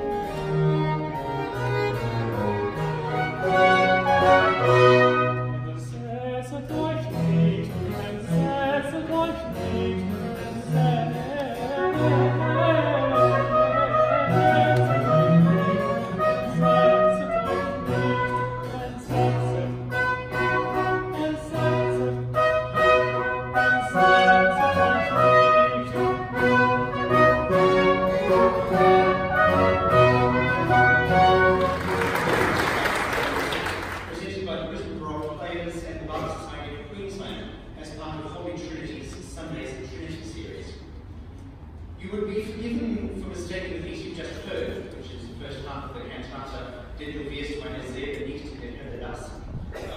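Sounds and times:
baroque chamber ensemble: 0:00.0 - 0:32.6
bass singer: 0:04.4 - 0:31.6.

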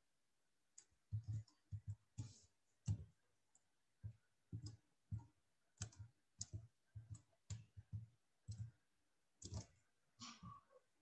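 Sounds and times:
computer mouse clicking: 0:00.8 - 0:03.7, 0:04.5 - 0:08.8, 0:09.4 - 0:10.4.

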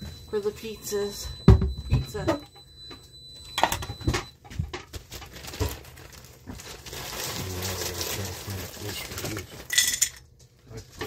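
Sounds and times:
plastic bag crinkling: 0:04.9 - 0:09.9.

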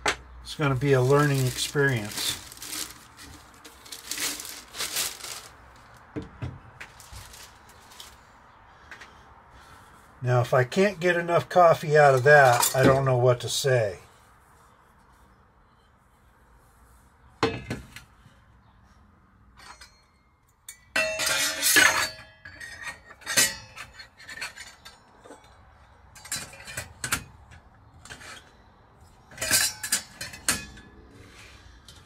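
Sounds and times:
metal parts clinking: 0:00.8 - 0:05.5.

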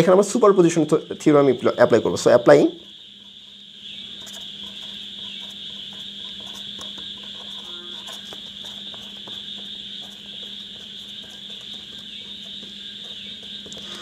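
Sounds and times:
faint low hum: 0:00.0 - 0:14.0
high-pitched hiss or chirring: 0:00.0 - 0:14.0
marker scratching on paper: 0:04.1 - 0:14.0.

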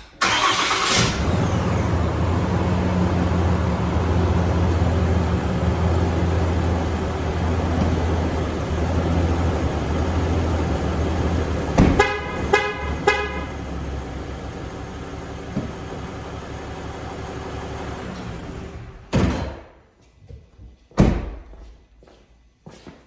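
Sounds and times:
car door slamming: 0:11.8 - 0:12.0
short horn honks: 0:11.9 - 0:13.6.

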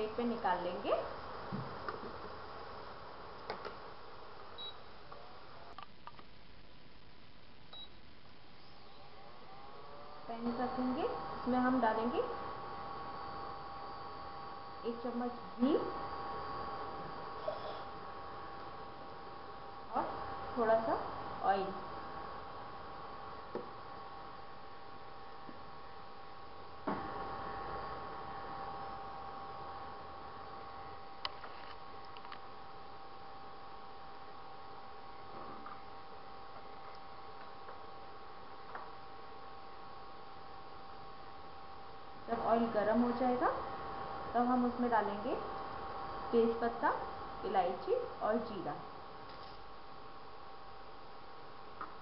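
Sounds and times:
induction cooktop humming and whining: 0:00.0 - 0:52.0.

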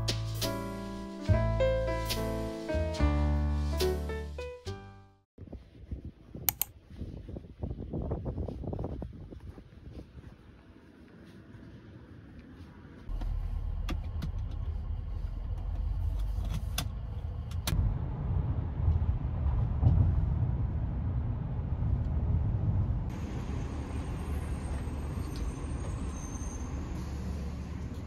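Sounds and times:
sharp clicks: 0:06.5 - 0:06.7
road and engine rumble: 0:08.6 - 0:28.0.

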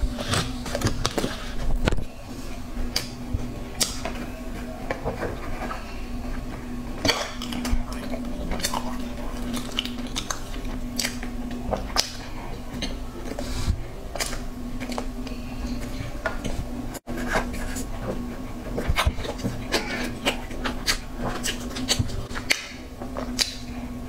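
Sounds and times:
steady low hum: 0:00.0 - 0:24.0
chewing cake close up: 0:07.0 - 0:13.0.

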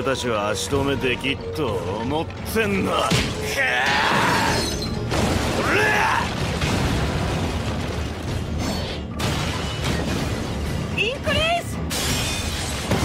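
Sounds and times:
rumble of magic blasts and impacts: 0:05.0 - 0:11.1, 0:11.8 - 0:13.0.

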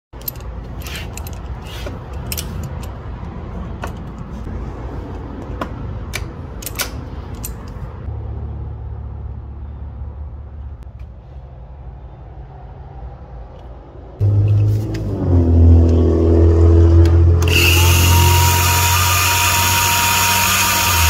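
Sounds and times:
metal tool clicks and clinks: 0:00.2 - 0:04.2, 0:06.1 - 0:07.8.

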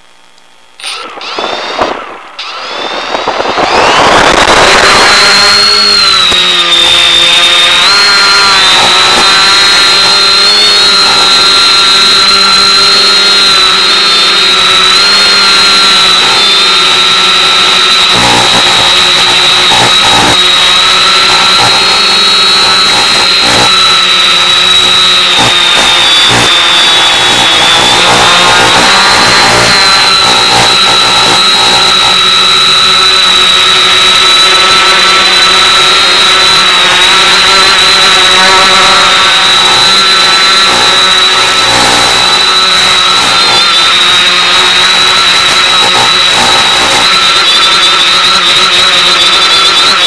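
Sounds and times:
drone motors whining: 0:00.0 - 0:50.0.

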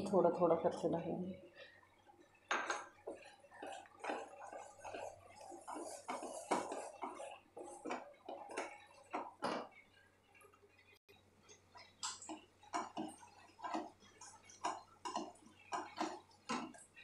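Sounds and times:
wooden spatula scraping a pan: 0:02.6 - 0:09.8, 0:12.8 - 0:17.0.

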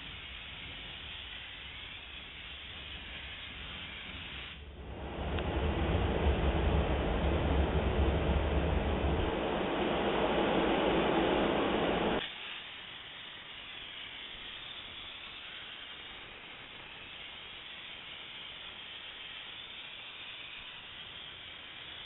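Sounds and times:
steam cleaner hissing: 0:00.0 - 0:22.0
loud rushing noise: 0:04.6 - 0:12.2.

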